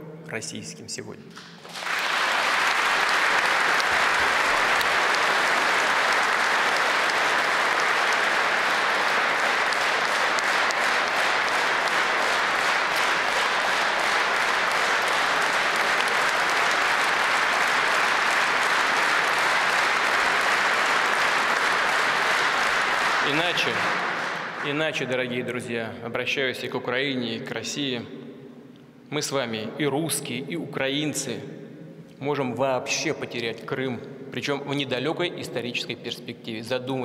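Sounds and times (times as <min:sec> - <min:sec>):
audience applauding: 0:01.5 - 0:25.0.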